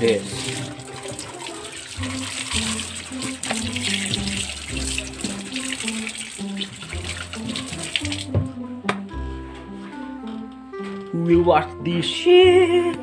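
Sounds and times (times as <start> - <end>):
water running from a tap: 0.0 - 8.5
background music: 0.0 - 13.0.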